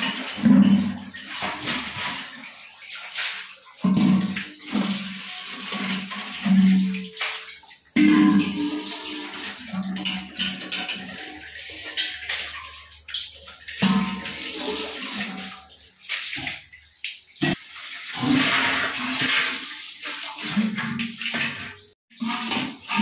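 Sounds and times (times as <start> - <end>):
metal pots knocking: 0.0 - 1.6, 8.0 - 13.0
pots being scrubbed: 0.0 - 16.6, 17.4 - 23.0
water running from a hose: 0.0 - 23.0.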